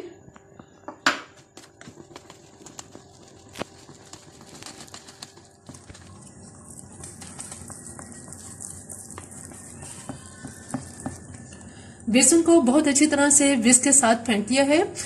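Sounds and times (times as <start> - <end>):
batter swishing: 1.5 - 12.6
whisk wires clicking on container: 1.8 - 11.6.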